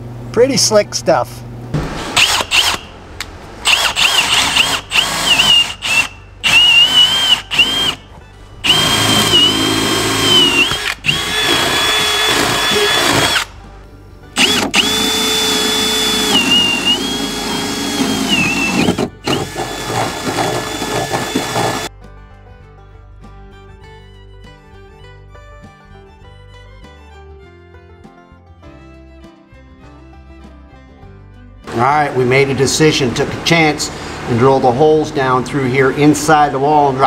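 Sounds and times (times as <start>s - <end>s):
cordless drill boring wood: 2.2s - 2.8s, 3.6s - 8.0s, 8.6s - 13.5s, 14.4s - 21.9s.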